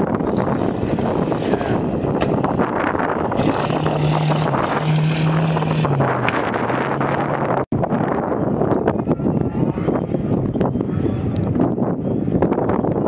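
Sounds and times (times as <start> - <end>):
wind on microphone: 0.0 - 13.0
rally car engine passing: 3.3 - 7.6.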